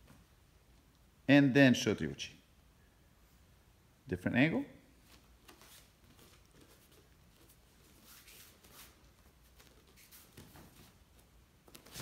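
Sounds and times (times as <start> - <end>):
bare feet scuffing on mat: 5.0 - 12.0.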